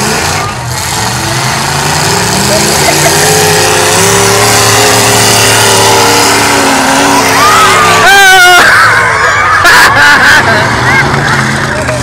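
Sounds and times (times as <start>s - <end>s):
loud distorted car engines: 0.0s - 12.0s
spectators shouting: 3.6s - 12.0s.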